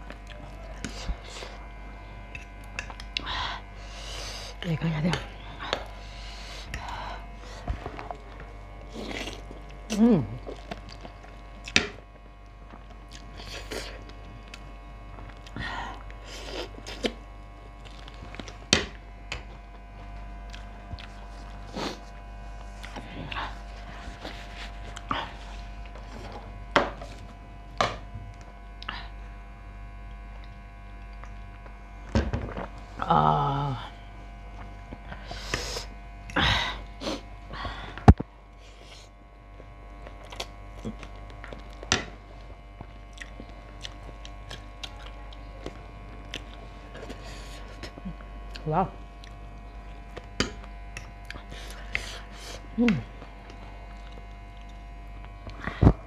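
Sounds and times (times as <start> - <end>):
electrical hum: 0.0 - 56.0
chewing and slurping noodles: 5.6 - 12.0, 12.7 - 18.7, 19.4 - 27.4, 38.6 - 48.6.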